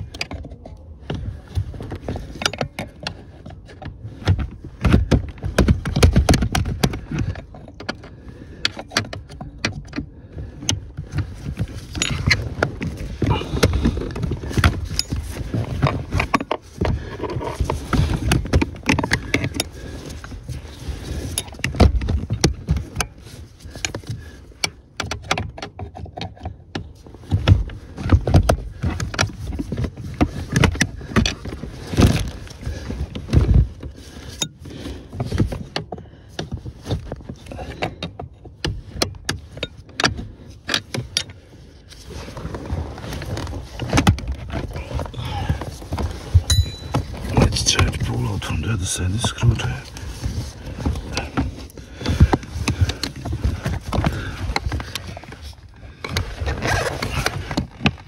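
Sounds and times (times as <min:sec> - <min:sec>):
clicks and knocks on pedal assembly: 0:00.0 - 0:19.8, 0:23.8 - 0:31.4.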